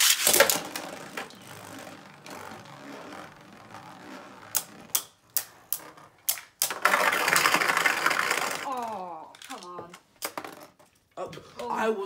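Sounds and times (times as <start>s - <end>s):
spinning tops clacking together: 0.0s - 1.4s
spinning tops whirring: 0.0s - 8.8s.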